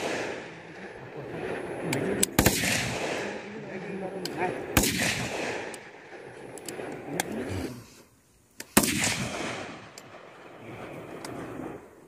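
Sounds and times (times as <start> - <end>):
loud rifle shot: 0.0 - 0.6, 2.4 - 3.5, 4.7 - 6.1, 8.8 - 10.3.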